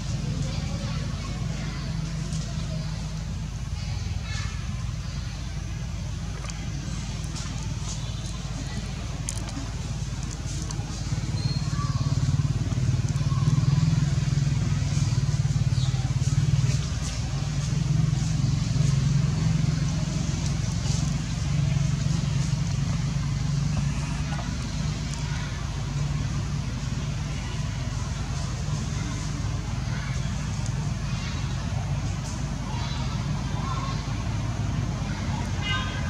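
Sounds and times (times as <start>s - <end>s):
engine drone: 0.0s - 36.0s.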